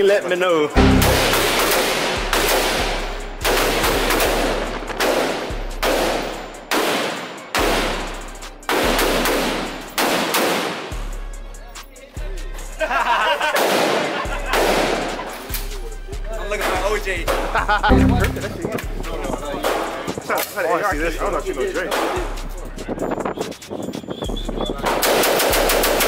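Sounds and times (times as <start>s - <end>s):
music with deep bass: 0.8s - 6.8s, 14.3s - 19.6s
gunshots with echo: 0.8s - 11.0s, 13.5s - 15.2s, 24.9s - 26.0s.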